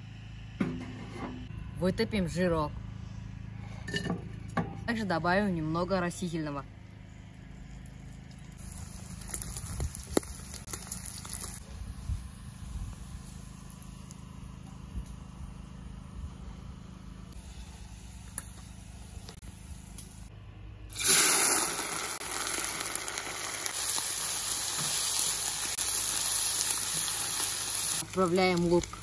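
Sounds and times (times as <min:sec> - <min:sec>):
fat sizzling in oil: 0:08.6 - 0:11.6, 0:21.0 - 0:29.0
meat frying loudly: 0:08.6 - 0:14.1, 0:21.0 - 0:29.0.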